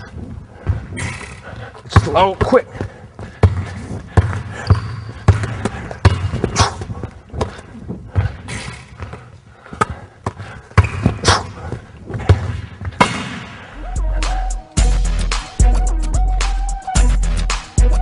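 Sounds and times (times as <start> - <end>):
basketball bouncing on wooden floor: 0.1 - 9.2, 9.8 - 13.4
music with heavy bass: 13.8 - 18.0.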